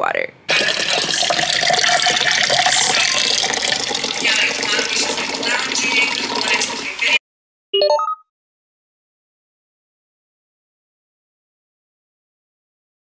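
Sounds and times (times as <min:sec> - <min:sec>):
water pouring into tumbler: 0:00.5 - 0:07.2.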